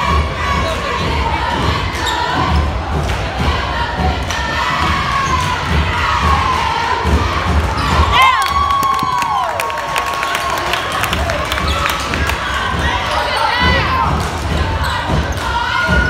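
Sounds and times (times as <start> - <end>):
crowd chatter: 0.0 - 16.0.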